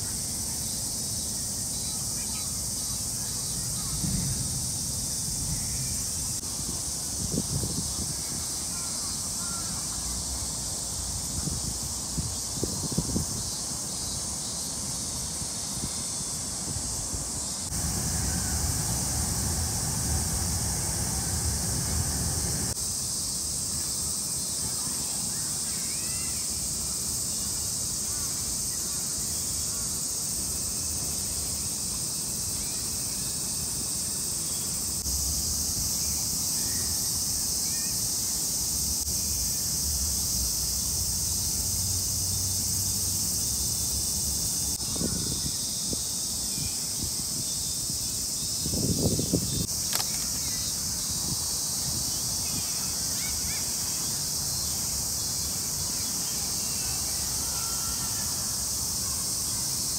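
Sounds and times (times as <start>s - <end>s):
cicadas droning: 0.0s - 59.9s
low rumble: 17.7s - 22.8s.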